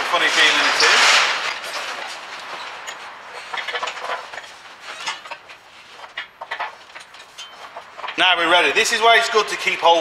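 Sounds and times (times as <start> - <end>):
steel parts clinking and knocking: 0.4 - 8.6.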